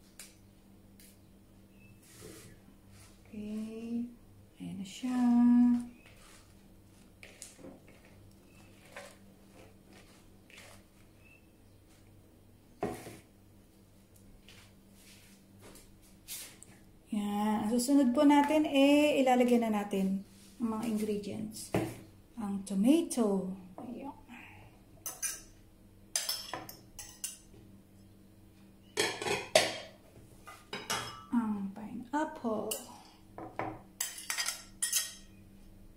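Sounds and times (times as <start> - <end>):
lettuce leaves rustling: 5.1 - 11.3
fork clinking on a plate: 25.0 - 25.5, 26.2 - 27.5, 34.0 - 35.4
dishes clattering: 26.1 - 27.5, 29.0 - 31.3, 33.4 - 35.4.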